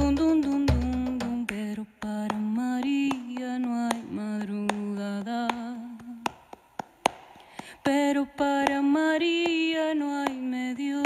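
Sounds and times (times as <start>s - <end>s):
woman singing wordless melody: 0.0s - 6.5s, 7.6s - 11.0s.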